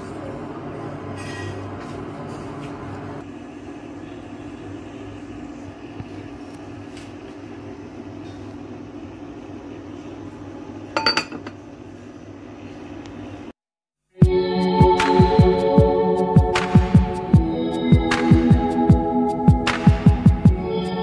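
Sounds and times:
glass lid clinking on pot: 11.0 - 11.6.

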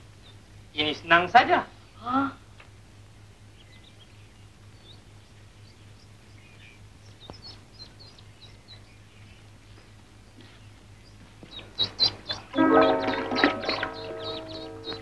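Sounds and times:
ducklings peeping: 3.1 - 15.0.

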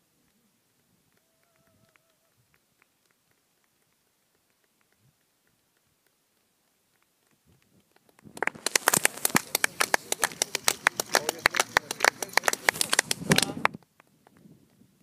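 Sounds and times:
microphone crackling and clicking: 7.5 - 11.2, 12.5 - 14.8.

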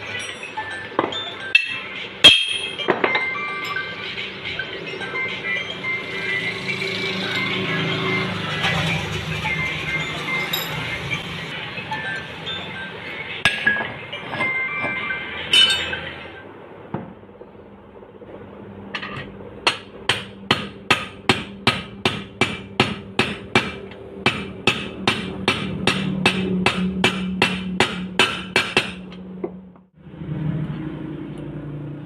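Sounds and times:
background music: 0.0 - 16.5.

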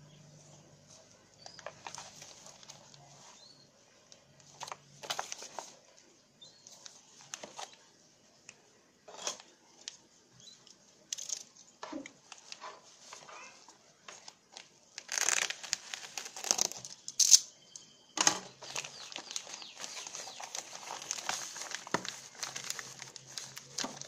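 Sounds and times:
bubble wrap crinkling: 1.4 - 3.5, 14.2 - 17.4, 18.6 - 24.0
plastic crinkling and tearing: 14.5 - 17.4, 18.6 - 24.0.

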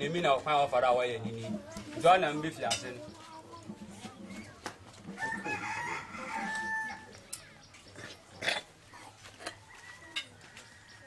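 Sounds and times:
rooster crowing: 5.2 - 7.1.

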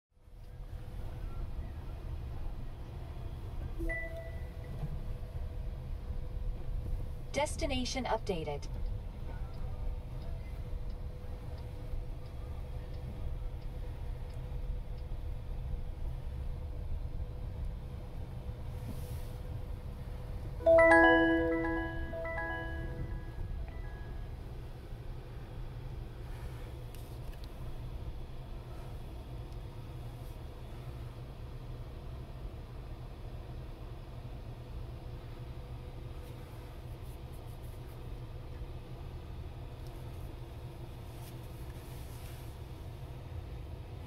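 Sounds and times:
low rumble of car cabin: 0.2 - 44.0
electronic notification chime: 20.6 - 23.4.

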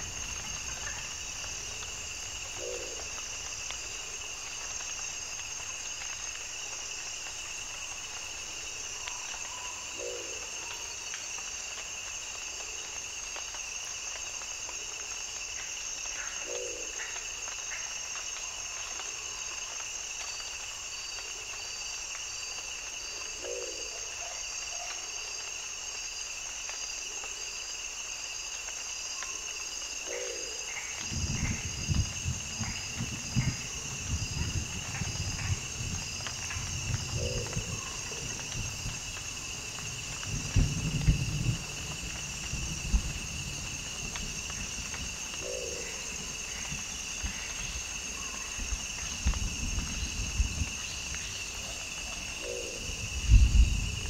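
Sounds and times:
insects trilling: 0.0 - 54.0.

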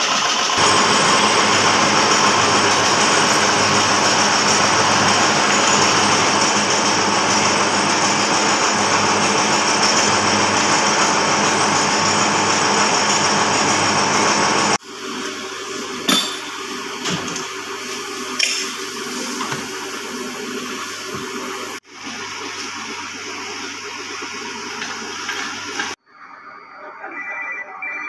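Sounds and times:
machinery hiss and hum: 0.6 - 14.8.

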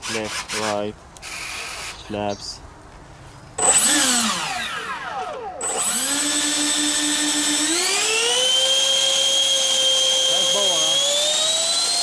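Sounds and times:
electric fans whining: 3.5 - 12.0.

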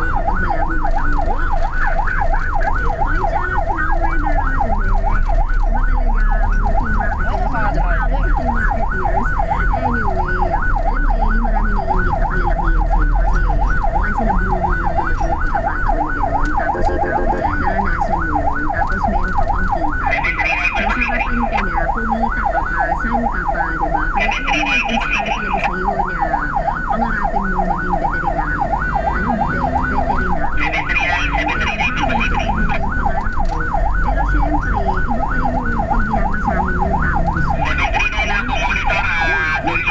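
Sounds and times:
siren yelping: 0.0 - 39.9
vehicle engine and road rumble: 0.0 - 39.9
short high-pitched siren blasts: 8.5 - 21.6.

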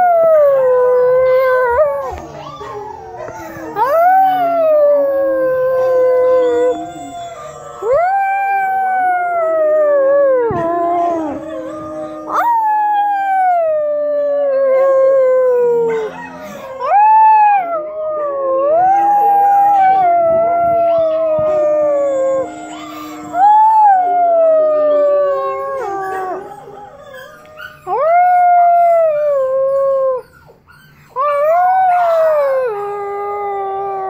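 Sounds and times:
dog howling: 0.0 - 34.0
lower steady howl: 0.0 - 34.0.

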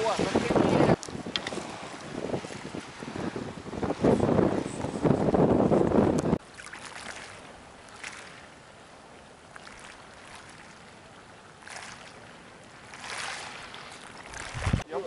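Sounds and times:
wind buffeting microphone: 0.0 - 6.4, 13.4 - 14.9
small sea waves lapping: 0.0 - 15.0.

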